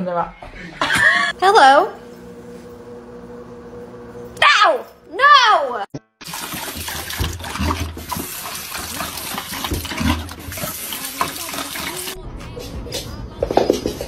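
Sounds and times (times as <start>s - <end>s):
dog lapping water: 6.2s - 12.2s
faucet running into sink: 6.2s - 12.2s.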